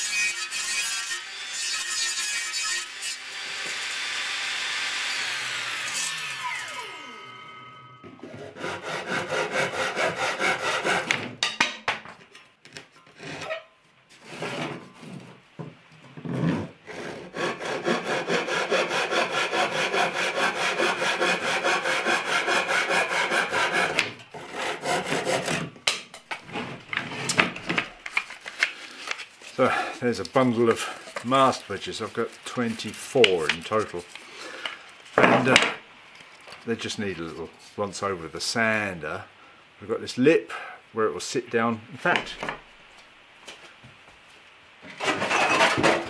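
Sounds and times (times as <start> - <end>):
handsaw cutting wood: 0.0 - 7.4, 8.2 - 11.4, 16.3 - 25.7
table saw blade spinning down: 4.8 - 8.2.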